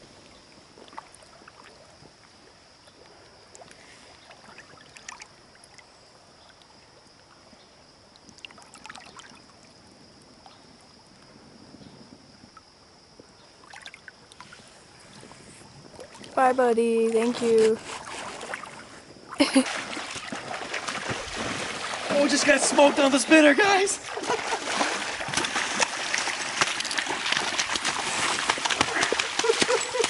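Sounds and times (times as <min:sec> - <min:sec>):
faint high hiss: 0:00.0 - 0:28.5
shallow river water trickling: 0:00.0 - 0:30.0
small water splashes and drips: 0:00.8 - 0:07.5, 0:08.1 - 0:09.8, 0:13.6 - 0:14.6, 0:17.1 - 0:30.0.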